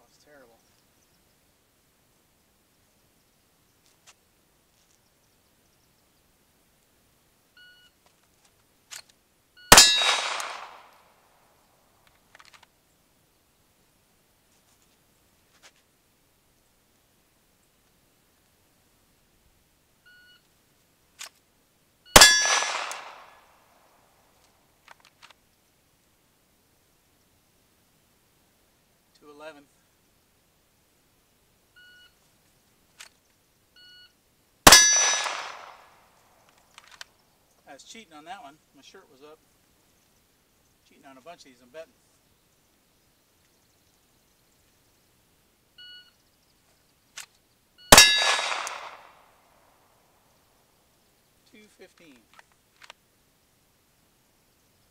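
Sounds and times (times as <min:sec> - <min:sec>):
steel target ringing: 0:09.7 - 0:10.6, 0:22.2 - 0:23.1, 0:34.7 - 0:35.6, 0:47.9 - 0:48.6
pistol shot: 0:09.7 - 0:11.1, 0:22.2 - 0:23.5, 0:34.6 - 0:35.9, 0:47.9 - 0:49.3
faint clicks: 0:51.9 - 0:53.0.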